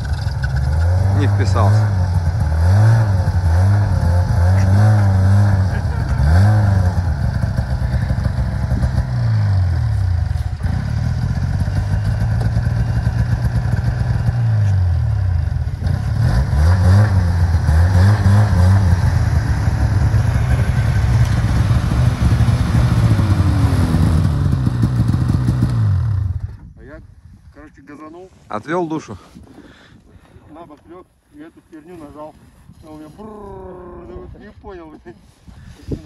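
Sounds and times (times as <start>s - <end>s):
snowmobile engine revving: 0.0s - 26.4s.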